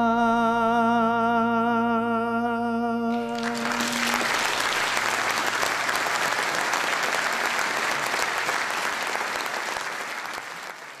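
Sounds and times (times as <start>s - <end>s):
audience applauding: 3.2s - 11.0s.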